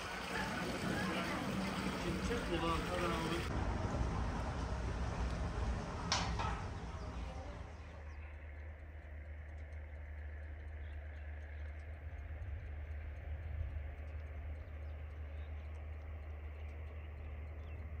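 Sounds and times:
low rumble: 0:00.0 - 0:18.0
faint ticks: 0:07.2 - 0:18.0.

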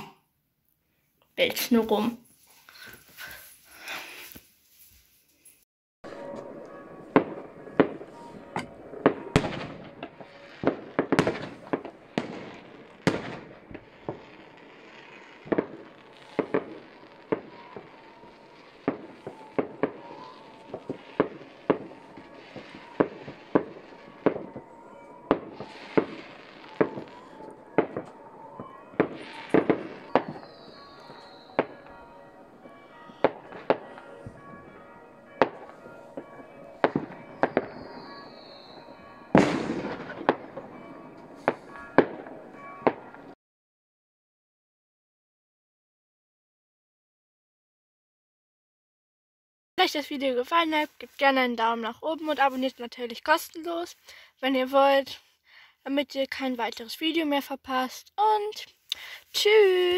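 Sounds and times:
firecrackers crackling: 0:06.1 - 0:43.4
fireworks bangs: 0:06.1 - 0:43.4
falling whistle: 0:15.1 - 0:33.9, 0:36.8 - 0:40.0.

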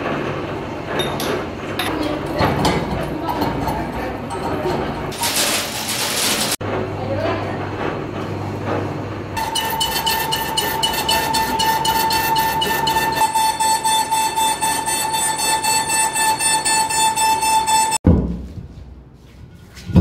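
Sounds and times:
lathe humming: 0:09.3 - 0:18.0
cutting tool squealing: 0:09.4 - 0:18.0.

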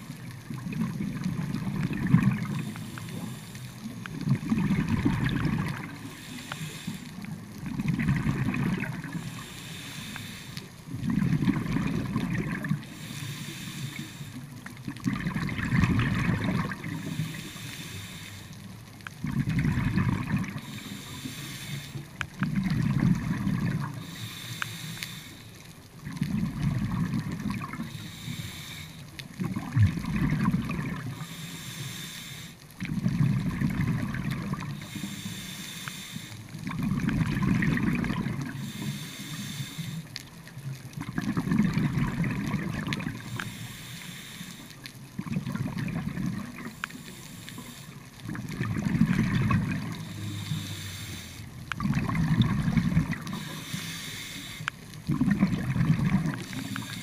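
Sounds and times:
exhaled bubbles rushing: 0:00.5 - 0:02.7, 0:04.1 - 0:06.1, 0:07.6 - 0:09.2, 0:10.9 - 0:12.9, 0:14.9 - 0:17.2, 0:19.2 - 0:20.7, 0:22.4 - 0:24.0, 0:26.0 - 0:27.9, 0:29.4 - 0:31.2, 0:32.8 - 0:34.8, 0:36.6 - 0:38.6, 0:40.9 - 0:43.3, 0:45.2 - 0:46.9, 0:48.2 - 0:50.2, 0:51.6 - 0:53.5, 0:55.0 - 0:57.0
regulator inhale hiss: 0:02.4 - 0:04.0, 0:05.8 - 0:07.4, 0:09.0 - 0:10.9, 0:12.8 - 0:14.6, 0:16.8 - 0:18.7, 0:20.5 - 0:22.2, 0:23.9 - 0:25.7, 0:27.8 - 0:29.2, 0:31.0 - 0:32.7, 0:34.6 - 0:36.6, 0:38.4 - 0:40.2, 0:43.2 - 0:45.0, 0:46.6 - 0:48.2, 0:49.8 - 0:51.6, 0:53.1 - 0:54.8, 0:56.3 - 0:57.0.

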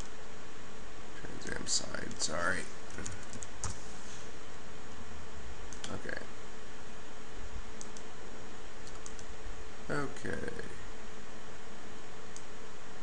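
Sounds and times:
faint hum: 0:00.0 - 0:13.0
computer keyboard and mouse clicks: 0:08.8 - 0:09.3.

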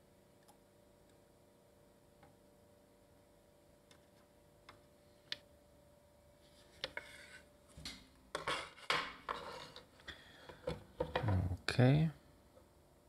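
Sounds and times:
circuit board scraping on wood: 0:06.6 - 0:07.5.

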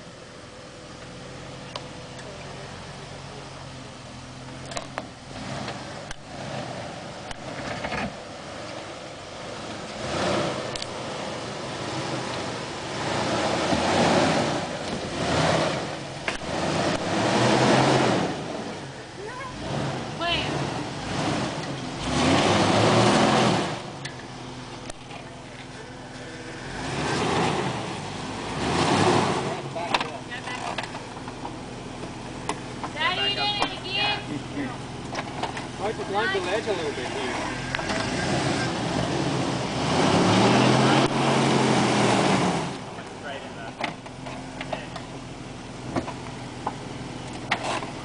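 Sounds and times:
engine climbing rocky hill: 0:00.0 - 0:48.0.

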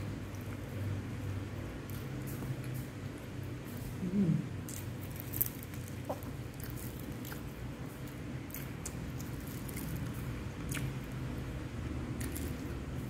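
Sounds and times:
steady low hum: 0:00.0 - 0:13.0
person chewing food: 0:01.8 - 0:11.4.

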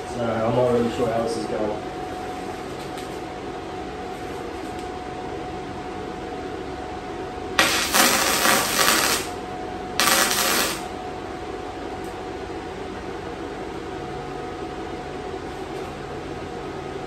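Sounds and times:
steady hum: 0:00.0 - 0:17.0
welding arc crackling: 0:07.6 - 0:09.4, 0:10.0 - 0:10.9.

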